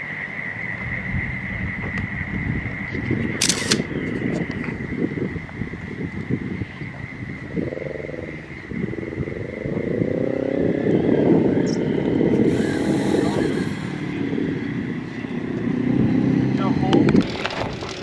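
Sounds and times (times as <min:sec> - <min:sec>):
vehicle engine passing: 0:09.9 - 0:18.0.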